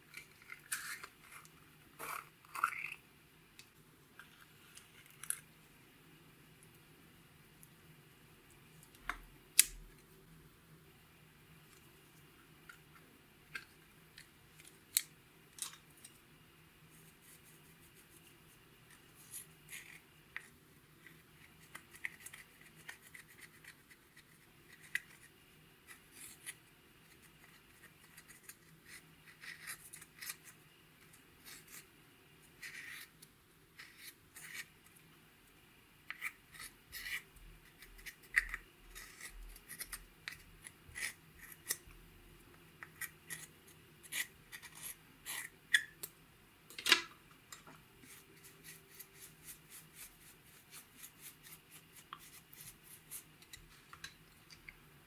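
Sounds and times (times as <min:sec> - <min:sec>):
plastic stick scratching eyeshadow: 0:18.9 - 0:31.8, 0:48.0 - 0:54.2.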